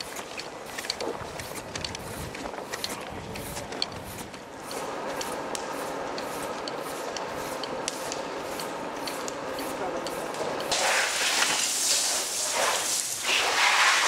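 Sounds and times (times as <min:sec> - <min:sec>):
steady hum: 0:00.0 - 0:13.6.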